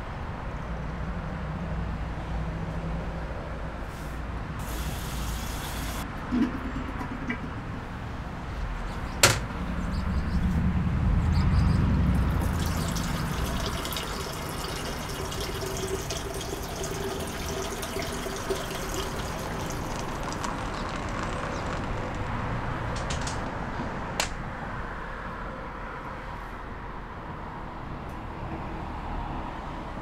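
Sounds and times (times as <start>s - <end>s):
water pouring into a mug: 12.2s - 21.6s.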